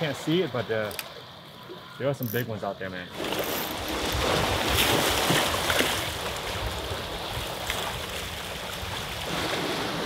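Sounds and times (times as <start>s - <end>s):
small waves washing against rocks: 3.1s - 10.0s.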